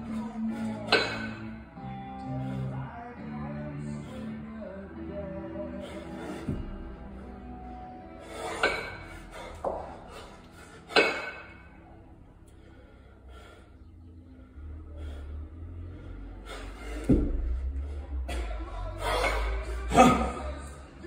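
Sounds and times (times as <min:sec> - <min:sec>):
background music: 0:00.0 - 0:21.0
kettlebells clinking together: 0:00.9 - 0:01.5, 0:08.6 - 0:09.0, 0:10.9 - 0:11.6.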